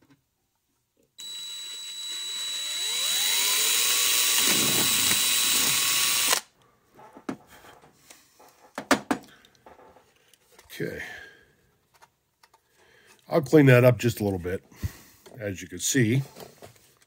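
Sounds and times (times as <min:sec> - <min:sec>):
cordless drill whining: 0:01.2 - 0:06.5.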